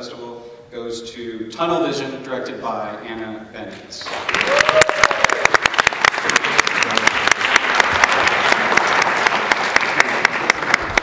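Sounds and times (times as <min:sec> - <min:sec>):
audience applauding: 0:04.1 - 0:11.0
loud close hand claps: 0:04.1 - 0:11.0.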